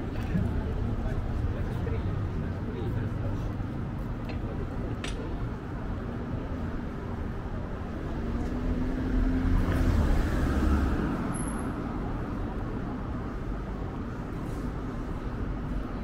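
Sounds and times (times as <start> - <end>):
hum of city traffic: 0.0 - 16.0
vehicle passing close by: 8.6 - 11.4.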